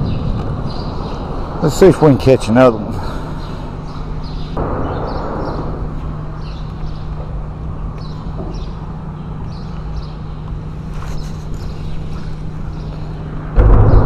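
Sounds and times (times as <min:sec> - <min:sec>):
wind rumbling on microphone: 0:00.0 - 0:02.0, 0:11.1 - 0:14.0
low hum: 0:00.0 - 0:14.0
small birds chirping: 0:00.0 - 0:14.0.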